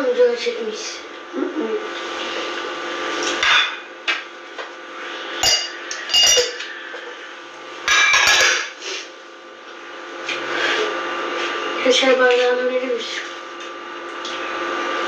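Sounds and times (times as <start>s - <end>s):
dishes and glasses clinking: 5.4s - 6.7s, 7.9s - 8.7s.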